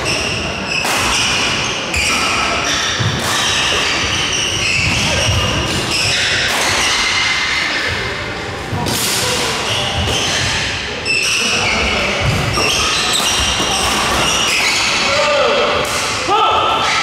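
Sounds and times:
racket striking shuttlecock: 0:00.8 - 0:02.3.

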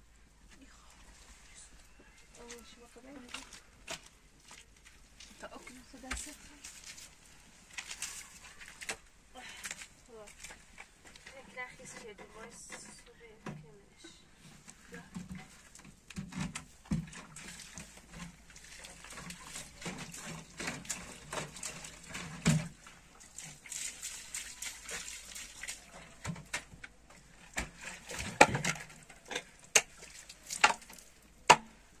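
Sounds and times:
liquid pouring and sloshing: 0:14.4 - 0:31.9
shovel scraping wet soil: 0:17.2 - 0:22.8.

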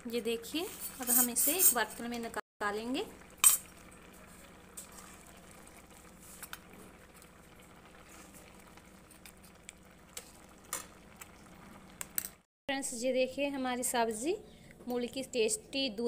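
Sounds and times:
thick liquid simmering: 0:02.6 - 0:12.5.

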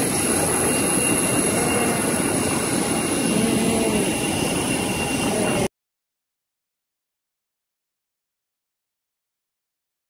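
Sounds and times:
high-pitched whine: 0:00.0 - 0:05.7
jet turbine rushing hum: 0:00.0 - 0:05.7.

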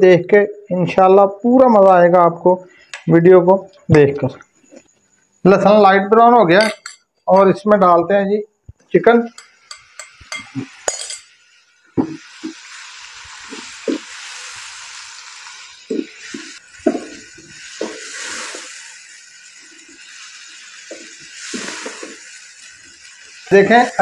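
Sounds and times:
chicken sizzling in hot oil: 0:09.4 - 0:24.0
wooden spatula knocking on pan: 0:16.8 - 0:17.2.

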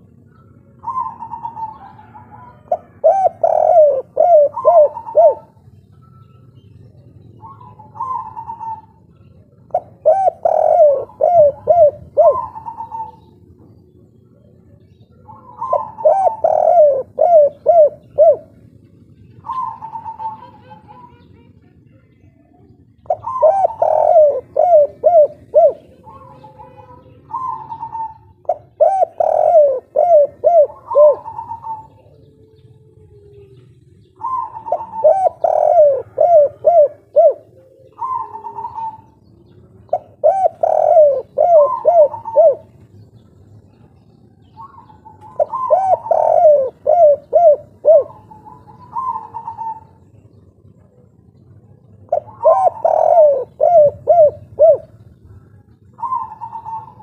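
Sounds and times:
dove cooing: 0:00.0 - 0:57.0.

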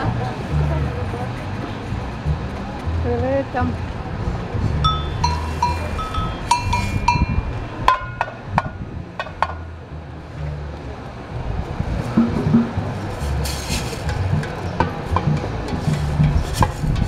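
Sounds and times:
ringing metallic percussion hits: 0:04.8 - 0:08.4
deep drum strokes: 0:11.6 - 0:17.0.

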